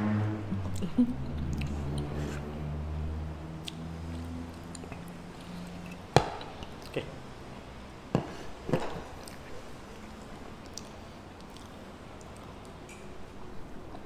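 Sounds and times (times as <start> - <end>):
chewing food: 9.2 - 13.0.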